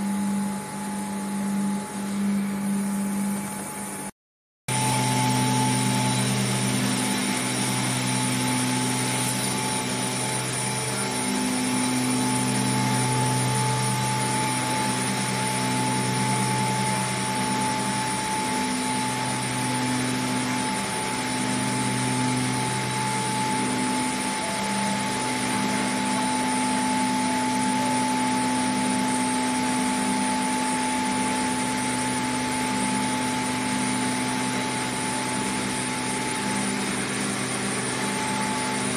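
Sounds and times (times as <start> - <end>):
high machine whine: 0.0 - 4.1, 4.7 - 38.9
low droning hum: 4.7 - 20.0.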